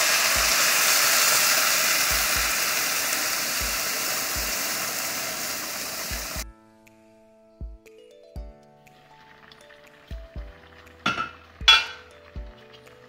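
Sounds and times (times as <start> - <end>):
water sizzling in hot oil: 0.0 - 6.4, 9.0 - 13.0.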